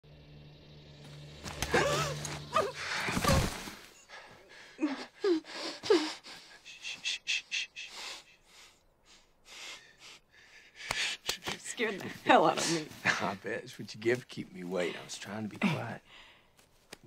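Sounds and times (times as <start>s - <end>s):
heavy breathing: 3.9s - 11.4s, 16.0s - 16.6s
woman gasping and crying: 4.2s - 6.6s.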